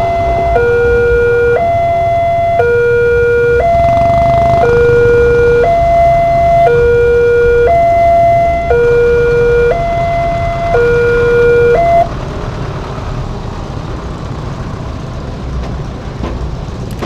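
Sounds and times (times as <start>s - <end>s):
level crossing two-tone alarm: 0.0s - 12.1s
motorcycle engines running: 3.1s - 7.5s.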